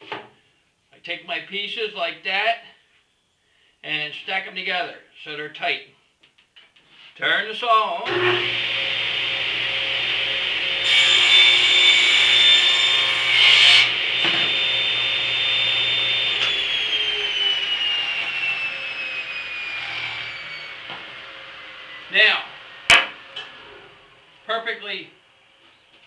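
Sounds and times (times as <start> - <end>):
saw blade spinning down: 8.0 - 24.1
table saw cutting wood: 8.0 - 24.2.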